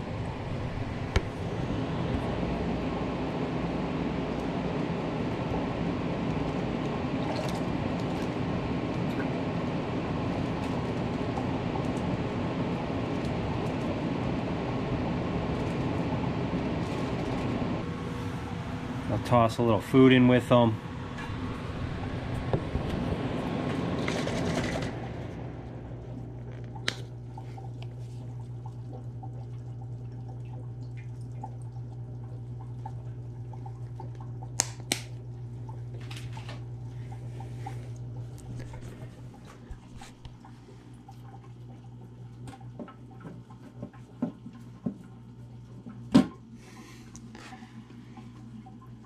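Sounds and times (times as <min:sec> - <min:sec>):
trickling water: 0:00.0 - 0:49.0
water pump humming: 0:00.0 - 0:49.0.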